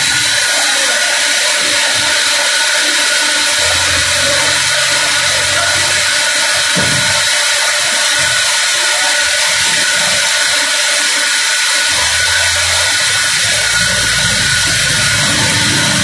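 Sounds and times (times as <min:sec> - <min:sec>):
band saw running with whine: 0:00.0 - 0:16.0
low hum: 0:11.9 - 0:16.0.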